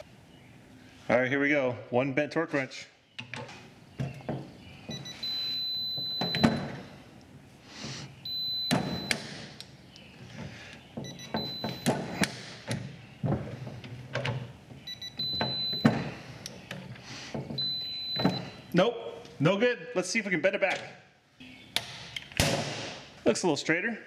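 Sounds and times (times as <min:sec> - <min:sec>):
digital torque adapter beeping: 0:04.9 - 0:06.6, 0:08.3 - 0:09.2, 0:14.9 - 0:15.8.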